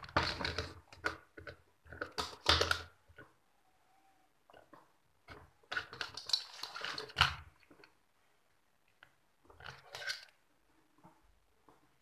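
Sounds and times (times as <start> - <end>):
small clicks and rustles: 4.4 - 12.0.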